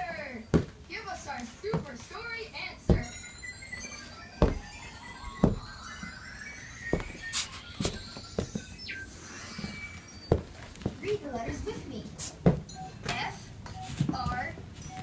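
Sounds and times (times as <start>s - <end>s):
rubber boots clomping on wood floor: 0.5s - 0.8s, 2.9s - 3.2s, 4.4s - 4.7s, 5.4s - 5.7s, 6.9s - 8.6s, 10.3s - 11.0s.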